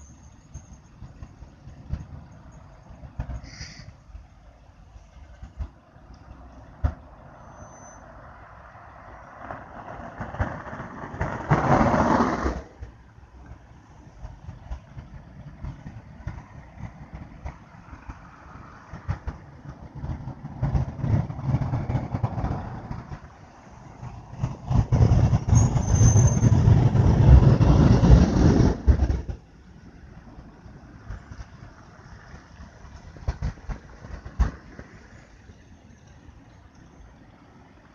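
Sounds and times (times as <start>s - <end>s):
freeway traffic on wet pavement: 0.0s - 37.9s
vehicle passing loudly: 6.0s - 13.1s, 14.1s - 35.8s.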